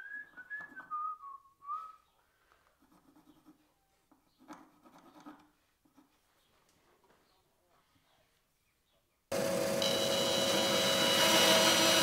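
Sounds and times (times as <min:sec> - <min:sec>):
person whistling: 0:00.0 - 0:02.0.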